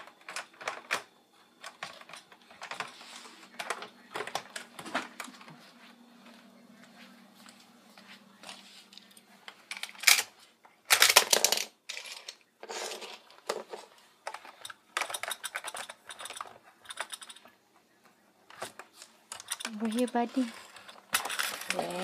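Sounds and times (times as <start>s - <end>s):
plastic toy parts clicking: 14.2s - 17.5s, 18.5s - 22.0s.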